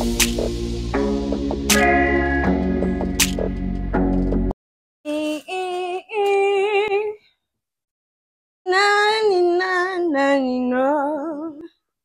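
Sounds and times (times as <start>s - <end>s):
woman singing unaccompanied: 5.1s - 7.2s, 8.7s - 11.8s.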